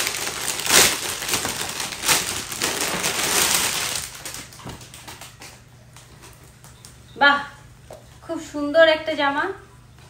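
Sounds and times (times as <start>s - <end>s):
plastic bag crinkling: 0.0s - 5.6s.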